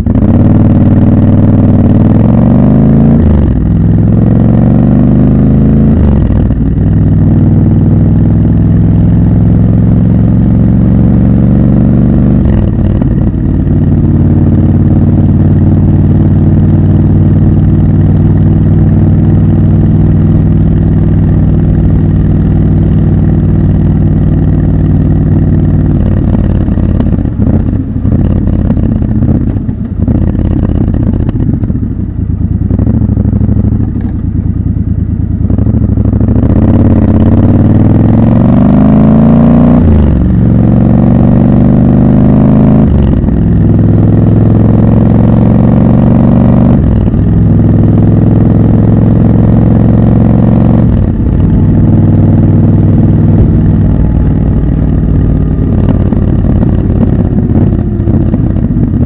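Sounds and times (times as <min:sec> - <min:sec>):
motorcycle engine: 0:00.0 - 0:59.0.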